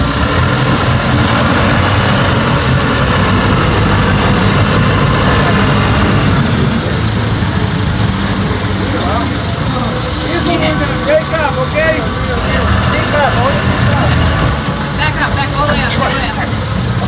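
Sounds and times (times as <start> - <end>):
boat engines running: 0.0 - 17.0
steady rushing noise: 0.0 - 17.0.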